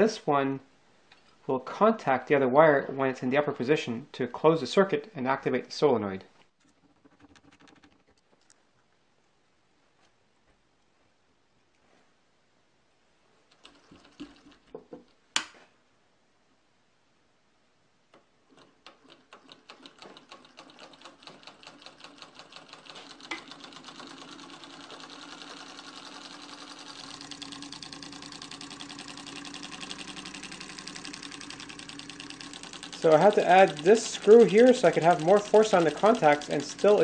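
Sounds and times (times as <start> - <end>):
solenoid engine clicking: 13.5 - 15.5, 18.1 - 37.0.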